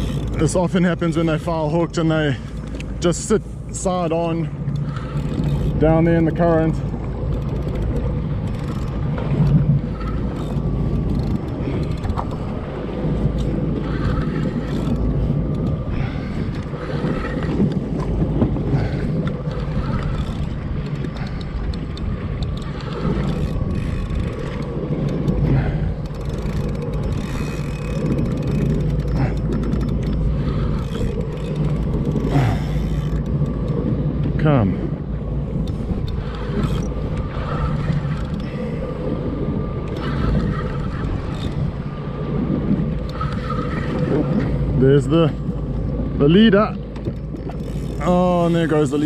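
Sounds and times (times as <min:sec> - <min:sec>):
water noise: 0:00.0 - 0:49.0
wind noise: 0:00.0 - 0:49.0
jet ski engine idling: 0:43.0 - 0:49.0.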